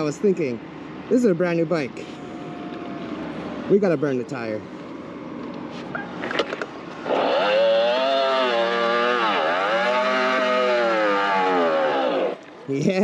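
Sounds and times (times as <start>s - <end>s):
tire squealing: 5.8s - 12.4s.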